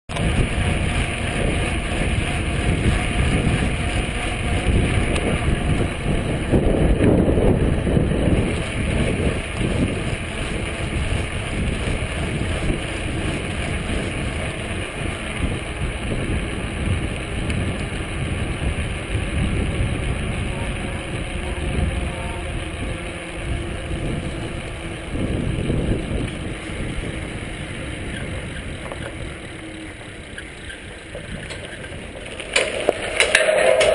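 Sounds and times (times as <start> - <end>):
bicycle tyre rumble on asphalt: 0.1 - 33.9
wind rushing over microphone: 0.1 - 33.9.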